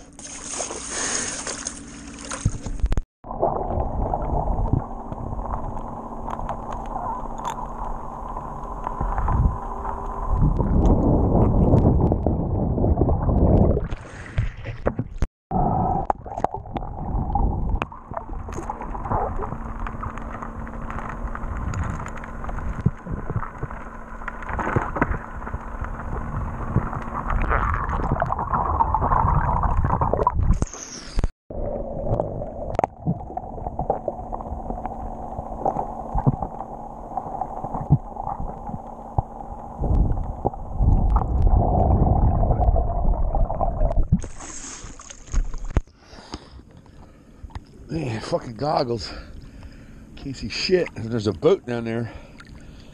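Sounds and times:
steady low hum: 0.0 - 14.3, 15.5 - 52.9
water gurgling and sloshing: 0.0 - 52.9.

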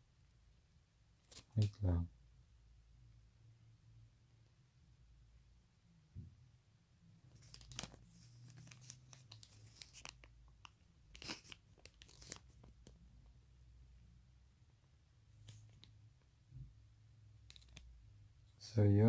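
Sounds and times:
paper rustling and crinkling: 7.3 - 12.9.

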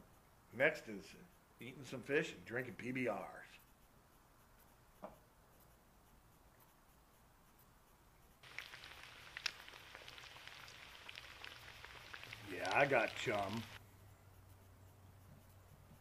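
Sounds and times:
fish frying in hot oil: 8.4 - 13.8.

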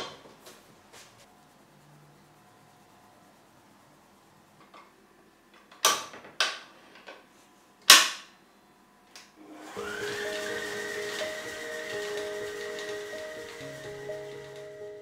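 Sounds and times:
stand mixer motor whining: 9.4 - 15.0.

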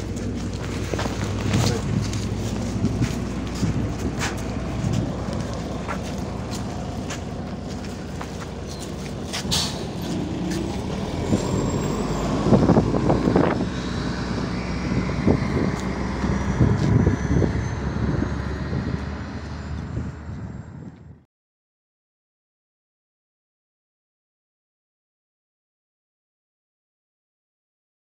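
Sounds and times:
rumbling and knocks: 0.0 - 13.8
bus engine hum: 0.0 - 21.3.

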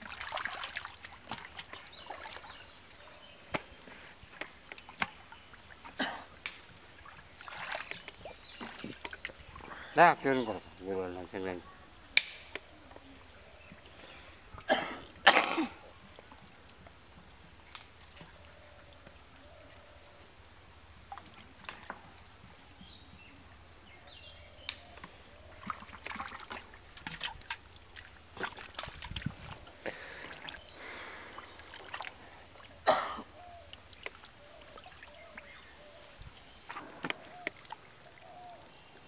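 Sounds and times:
splashing in muddy water: 0.0 - 2.9, 4.4 - 9.9, 25.5 - 35.7, 36.6 - 38.4.

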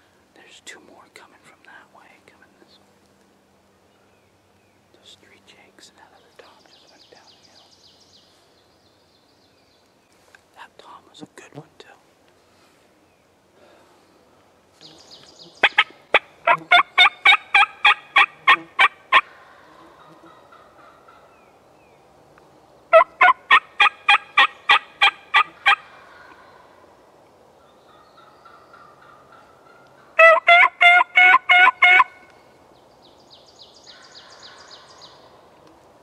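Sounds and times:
turkey calling: 15.6 - 21.5, 22.9 - 26.5, 27.9 - 32.2.

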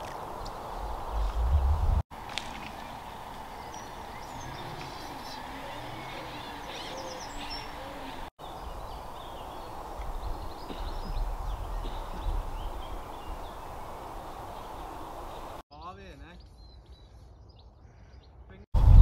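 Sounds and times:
low rumbling noise: 0.6 - 2.0
small birds chirping: 2.5 - 18.6
low hooting bird calls: 2.7 - 15.6.

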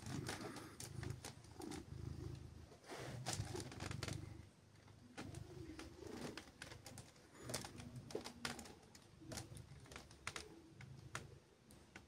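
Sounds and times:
cat purring: 0.0 - 12.0
faint clicks and rustles: 0.0 - 12.0.

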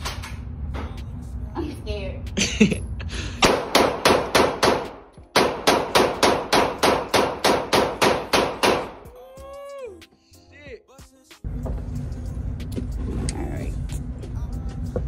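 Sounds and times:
handgun shots indoors: 3.4 - 9.1.

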